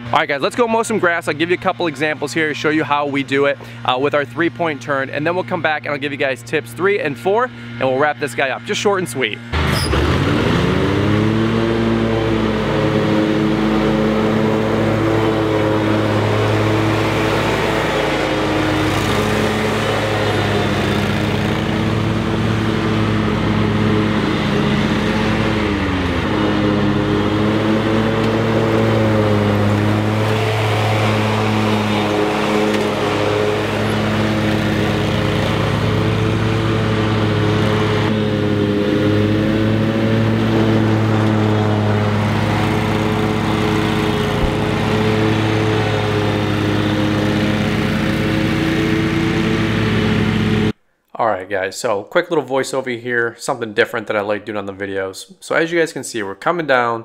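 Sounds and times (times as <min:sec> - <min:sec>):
mower engine running: 0:00.0 - 0:50.8.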